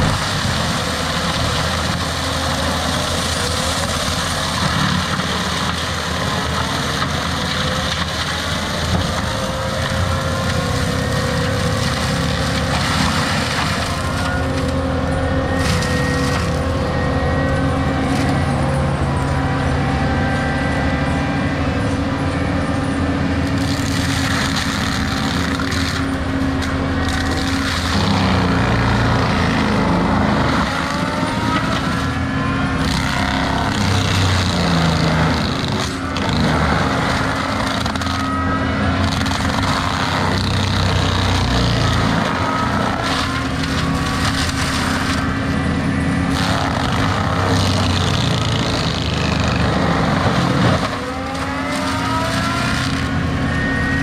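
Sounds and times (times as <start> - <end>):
diesel machinery running: 0.0 - 54.0
grinding shredding noise: 0.0 - 54.0
rising whines: 48.9 - 54.0.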